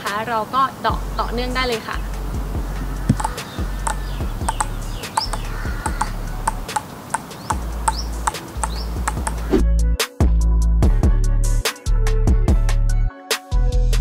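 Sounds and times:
birds chirping: 0.4 - 9.6
table tennis balls tapping paddles: 4.4 - 9.4.

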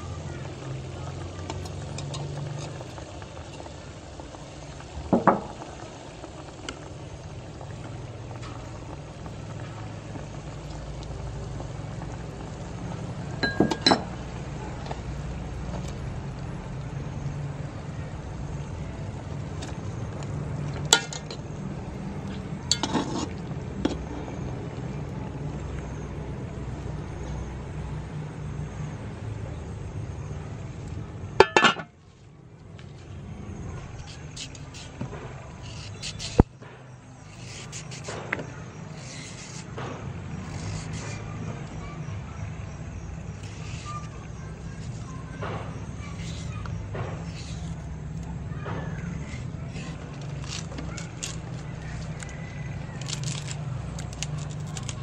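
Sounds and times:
utensil clinking on metal pot: 13.4 - 14.2, 20.9 - 21.4, 22.7 - 23.4, 31.4 - 32.0.

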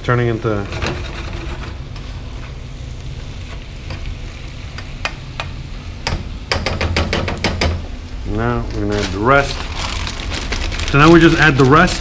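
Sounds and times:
greens sizzling in a pan: 2.0 - 6.5, 7.8 - 12.0.

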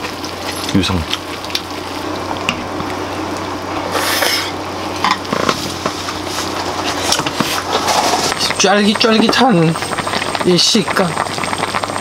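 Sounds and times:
broth bubbling and sizzling: 0.0 - 12.0.

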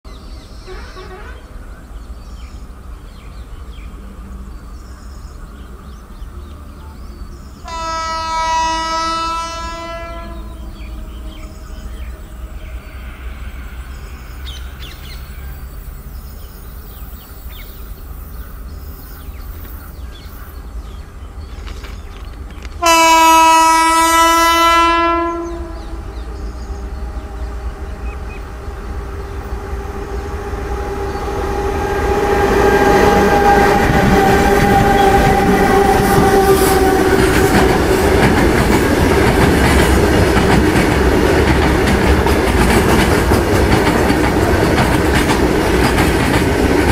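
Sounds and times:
locomotive hum: 0.2 - 46.9
locomotive horn blast: 0.6 - 1.6, 7.6 - 12.0, 22.8 - 26.1, 31.2 - 38.2
freight wagons rumbling past: 8.7 - 23.8, 25.2 - 46.9.

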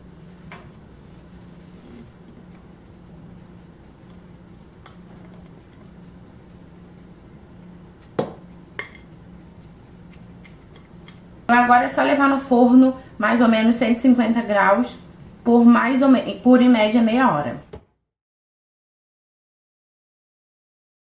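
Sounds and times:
low steady hum: 0.0 - 17.8.

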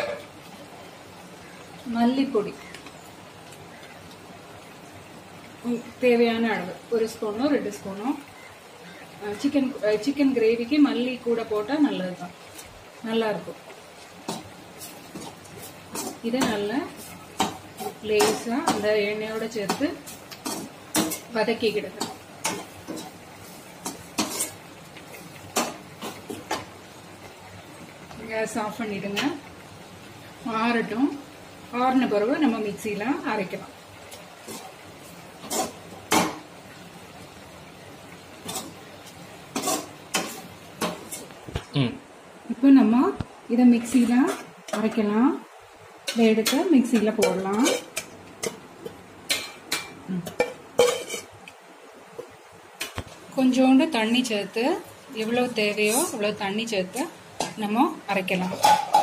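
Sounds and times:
spatula scraping a pan: 14.1 - 26.7, 34.1 - 36.4, 38.4 - 38.9, 39.5 - 41.3, 46.1 - 51.4, 55.7 - 56.2, 58.4 - 59.0.

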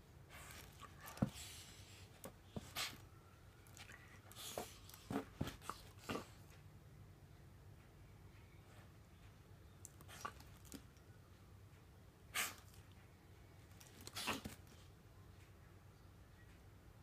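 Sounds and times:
puppy puffing: 4.3 - 6.6, 12.3 - 12.8, 14.0 - 14.7.

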